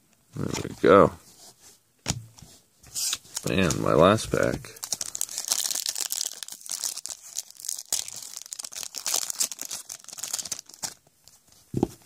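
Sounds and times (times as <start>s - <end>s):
foil wrapper tearing and crinkling: 4.8s - 11.0s.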